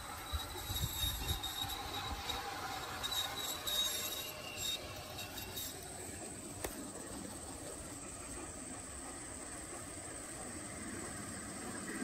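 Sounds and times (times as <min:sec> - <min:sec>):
wheel squeal: 0:00.0 - 0:07.0
model train whine: 0:00.0 - 0:12.0.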